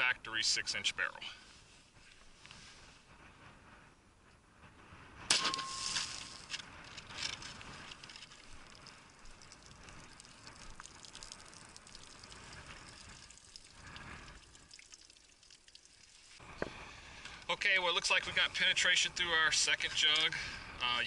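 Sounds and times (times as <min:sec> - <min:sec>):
gunshot ringing: 0:05.3 - 0:06.0
water gushing and splashing: 0:07.9 - 0:16.4.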